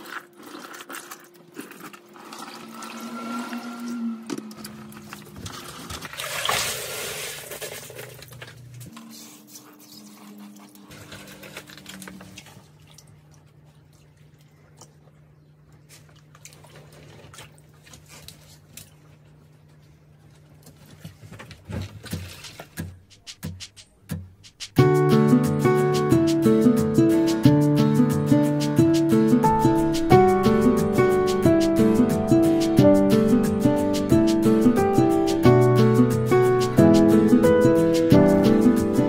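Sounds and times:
water splashing into pond: 0.0 - 8.4.

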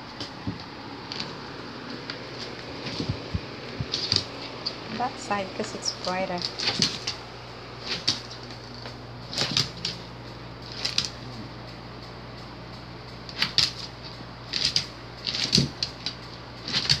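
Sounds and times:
steady low hum: 0.0 - 17.0
dog claws scrabbling on hardwood: 0.2 - 4.8, 6.4 - 7.2.

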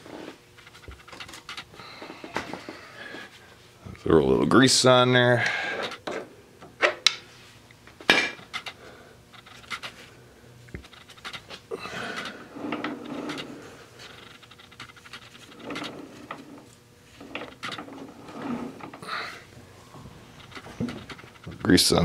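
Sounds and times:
metal parts clinking and rubbing: 0.6 - 1.7, 8.3 - 10.0, 10.8 - 19.1, 20.3 - 22.0.

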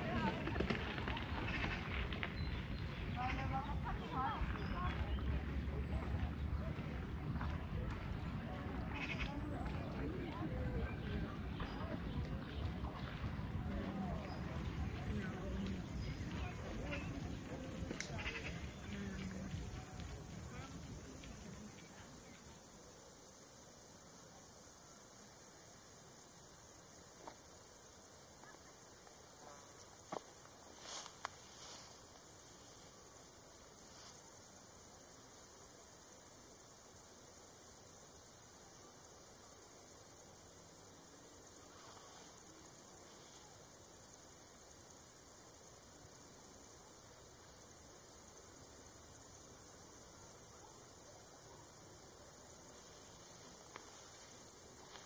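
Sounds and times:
crickets chirping: 13.4 - 55.0.

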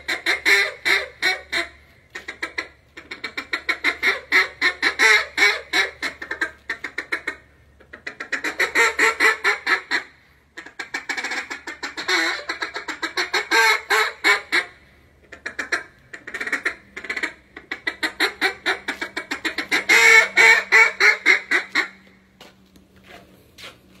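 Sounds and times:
duck call rapid quacks: 0.0 - 22.1.

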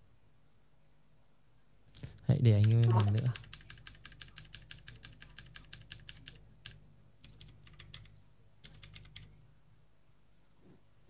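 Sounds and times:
rapid clicking: 1.9 - 9.3.

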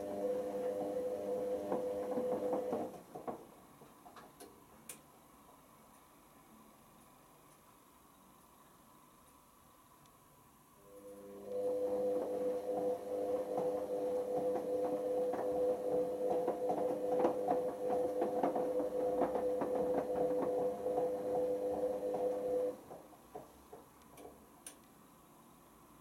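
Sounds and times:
washing machine motor whine: 0.0 - 3.0, 10.8 - 23.0.

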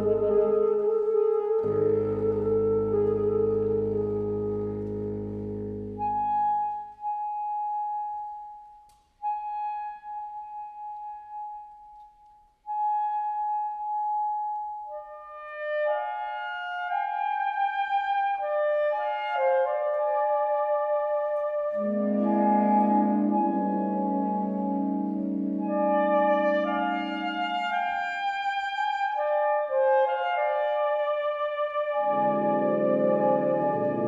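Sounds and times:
saxophone ensemble playing: 0.0 - 6.3, 21.8 - 34.0.

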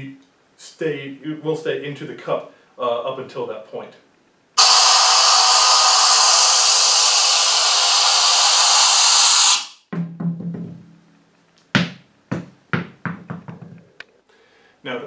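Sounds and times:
air gun hissing: 4.6 - 9.9
sharp knocks: 11.7 - 14.0.

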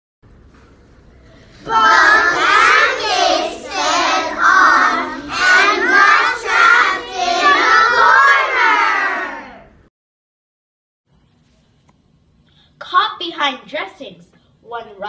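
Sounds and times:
children chanting in unison: 1.6 - 9.6.

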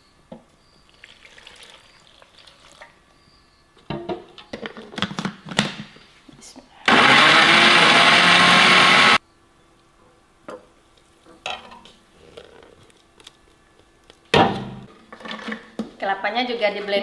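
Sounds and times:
electric blender running: 6.9 - 9.2.

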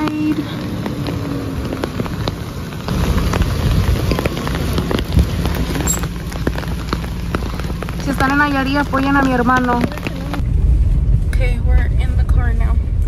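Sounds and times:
rain pattering on umbrella: 0.0 - 10.4
vehicle rumble: 0.0 - 13.0.

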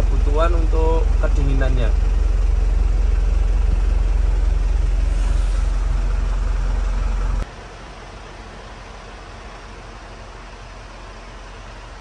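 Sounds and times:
air conditioning running: 0.0 - 12.0
diesel engine idling: 0.0 - 12.0.

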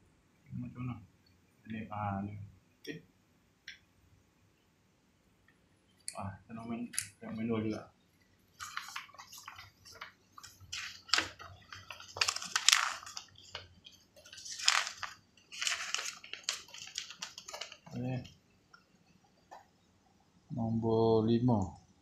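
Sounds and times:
paper rustling and crinkling: 8.6 - 18.4.

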